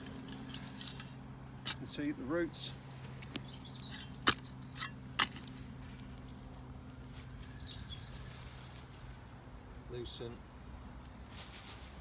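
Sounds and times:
bird chirping: 0.0 - 5.0, 6.0 - 9.3.

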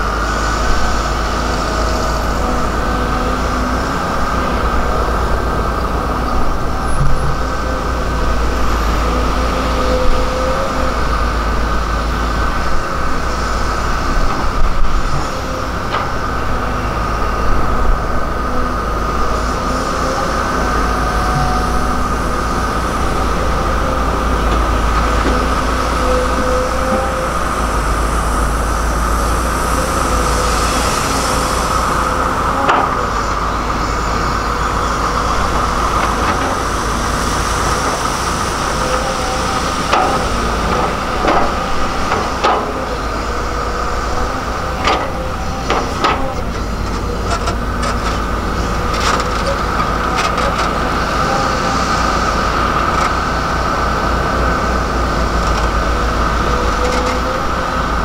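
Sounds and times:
excavator diesel engine: 0.0 - 58.0
high whine: 0.0 - 58.0.

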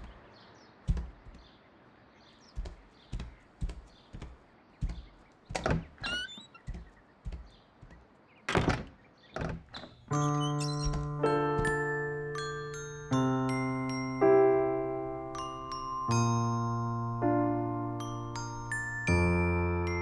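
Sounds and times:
heavy footsteps on wooden floor: 0.0 - 1.6, 2.3 - 12.2
door sound: 4.8 - 7.4, 8.4 - 12.0.

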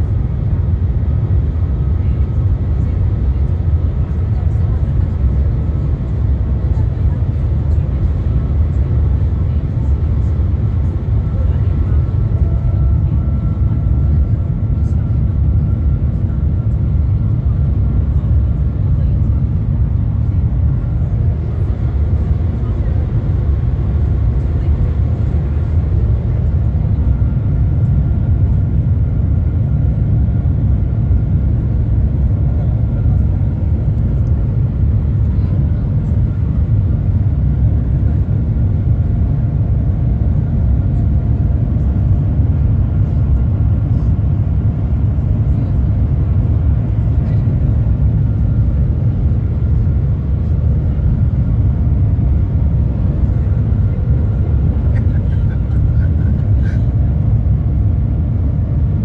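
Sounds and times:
train rumble inside car: 0.0 - 59.0.

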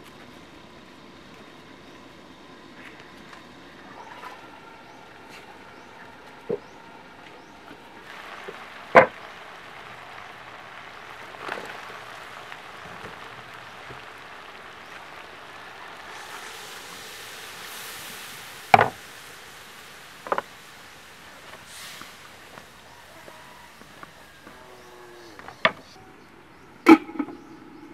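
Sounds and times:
pork sizzling in a wok: 5.6 - 25.7
liquid poured into hot pan: 8.0 - 22.9.

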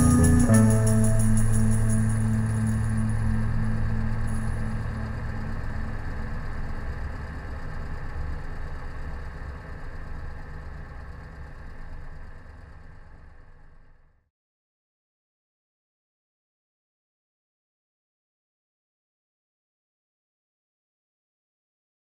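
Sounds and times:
engine idling: 0.0 - 14.1.

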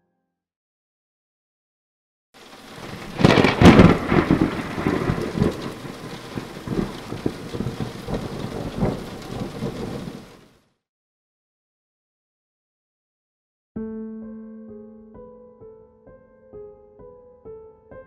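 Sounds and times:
thunder rumbling and crackling: 2.4 - 10.5
steady rain: 2.4 - 10.6
loud thunderclap: 2.6 - 10.4.

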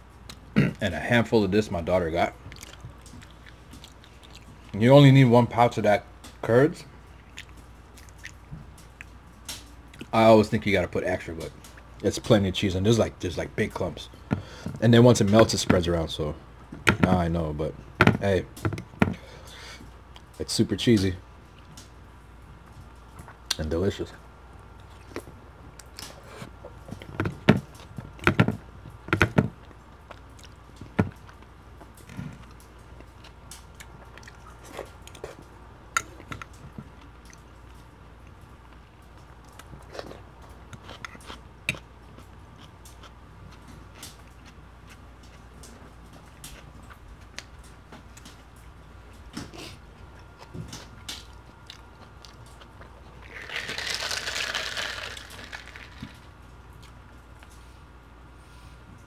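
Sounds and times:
table handling noises: 26.2 - 29.6.

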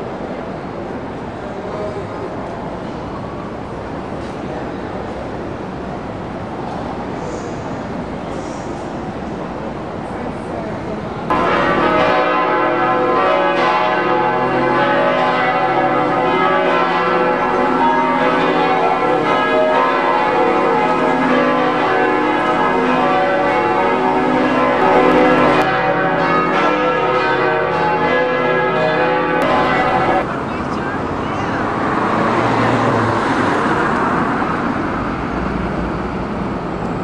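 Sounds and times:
church bells pealing: 11.3 - 31.0.

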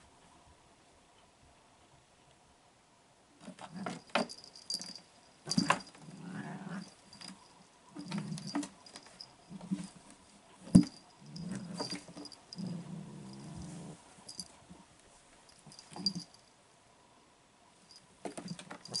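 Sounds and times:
knocks and thumps: 3.9 - 6.0, 10.6 - 11.0.

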